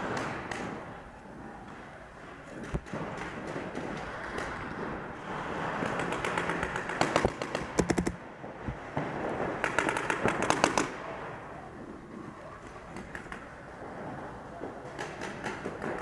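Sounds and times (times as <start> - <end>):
paintball markers firing rapidly: 5.6 - 8.2, 9.6 - 11.0, 14.9 - 16.0.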